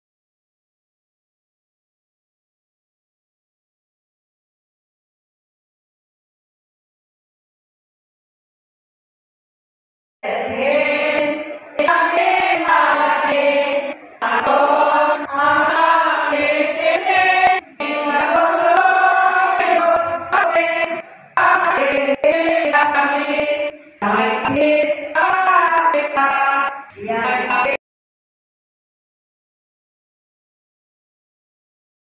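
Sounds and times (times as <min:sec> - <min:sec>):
women singing a hymn: 0:10.2 - 0:27.8.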